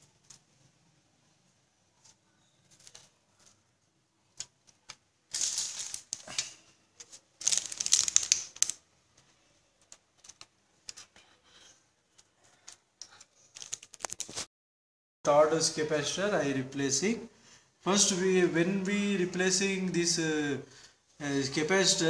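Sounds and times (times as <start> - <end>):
rustling: 1.9 - 11.1.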